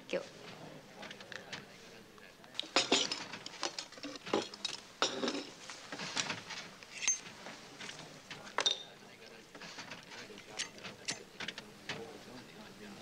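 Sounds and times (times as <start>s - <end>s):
china cups and spoons clinking: 2.6s - 5.6s, 6.9s - 7.3s, 8.6s - 9.0s
cup ringing: 8.6s - 9.0s.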